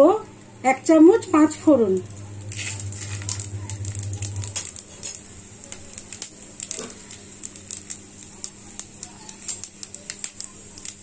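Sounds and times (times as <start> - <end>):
low hum: 1.2 - 5.6
popping and crackling seeds: 1.2 - 11.0
seeds sizzling in hot oil: 1.2 - 11.0.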